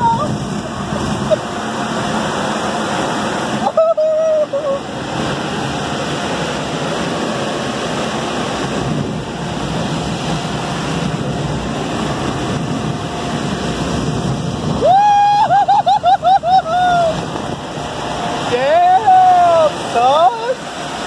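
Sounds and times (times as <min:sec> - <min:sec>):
wind and road noise in car: 0:00.0 - 0:21.0.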